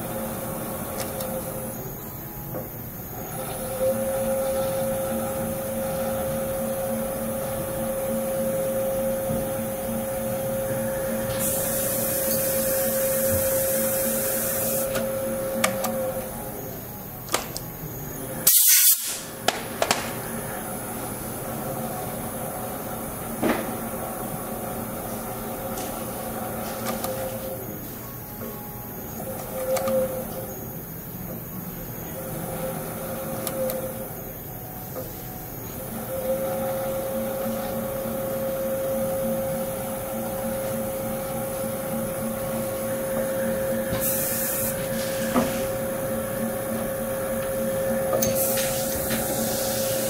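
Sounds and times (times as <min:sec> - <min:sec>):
spindle motor humming: 0:00.0 - 0:18.6, 0:19.2 - 0:50.0
hiss: 0:18.5 - 0:19.3, 0:44.0 - 0:45.8, 0:48.3 - 0:50.0.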